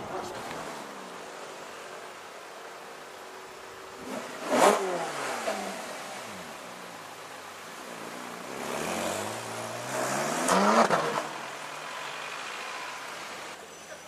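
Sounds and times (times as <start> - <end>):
car engine revving: 3.9 - 7.2, 7.8 - 13.6.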